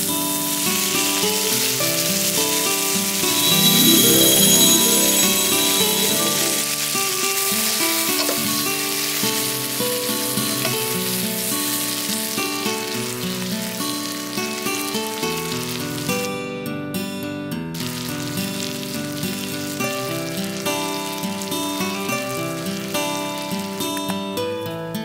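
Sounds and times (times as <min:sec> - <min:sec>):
meat sizzling in a pan: 0:00.0 - 0:16.5, 0:17.8 - 0:24.3
soft background music: 0:03.2 - 0:07.0.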